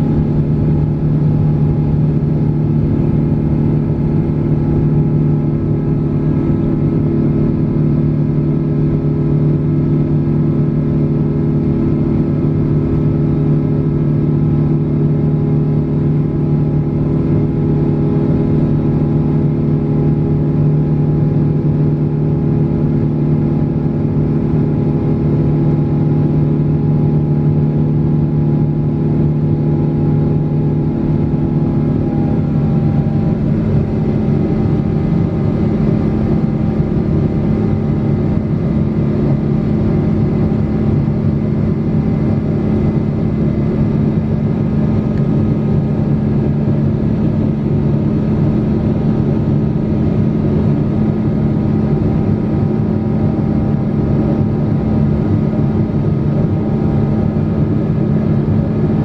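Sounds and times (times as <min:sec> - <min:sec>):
jet engines droning: 0:00.0 - 0:05.6, 0:26.6 - 0:59.0
airflow rushing: 0:29.6 - 0:36.2.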